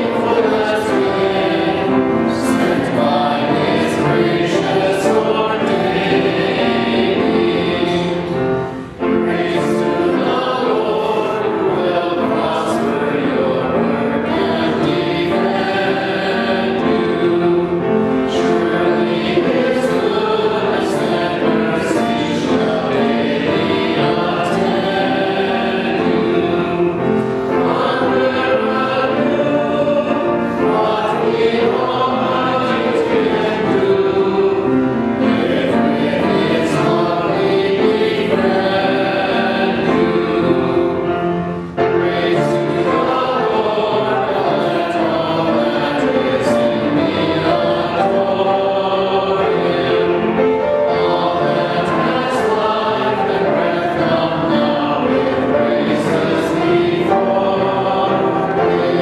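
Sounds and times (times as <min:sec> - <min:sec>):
choir singing a hymn: 0:00.0 - 0:59.0.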